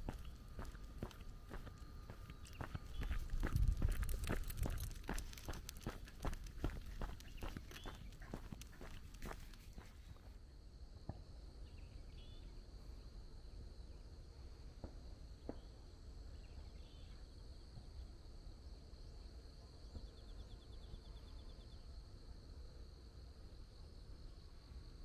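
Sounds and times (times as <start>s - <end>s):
pulsed insect trill: 0.0s - 9.8s
footsteps on paved road: 0.0s - 10.3s
faint low rumble: 0.0s - 12.4s
insects chirping: 0.0s - 25.0s.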